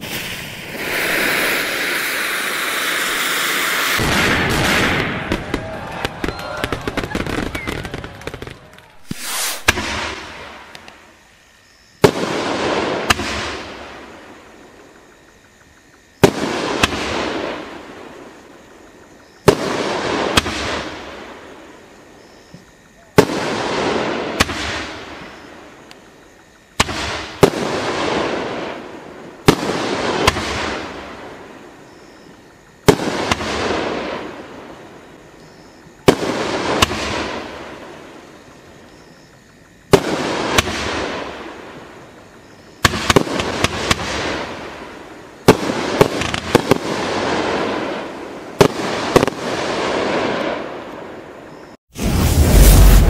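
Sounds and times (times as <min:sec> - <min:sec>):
firework bangs: 0:00.0 - 0:10.9, 0:12.0 - 0:14.5, 0:16.2 - 0:18.3, 0:19.4 - 0:21.5, 0:23.2 - 0:25.5, 0:26.8 - 0:31.5, 0:32.8 - 0:34.9, 0:36.0 - 0:38.2, 0:39.9 - 0:42.0, 0:42.8 - 0:51.3, 0:51.9 - 0:53.0
firework second report: 0:00.0 - 0:11.1, 0:51.9 - 0:53.0
firework hiss: 0:00.0 - 0:11.2, 0:51.9 - 0:53.0.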